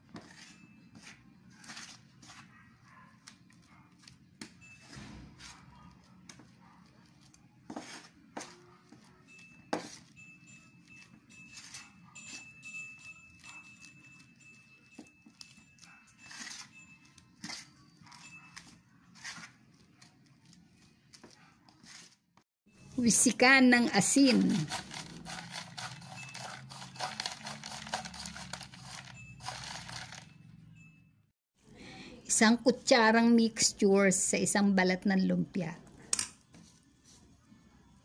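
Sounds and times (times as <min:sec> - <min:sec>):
utensil scraping metal bowl: 0:00.0 - 0:02.5, 0:24.0 - 0:30.2.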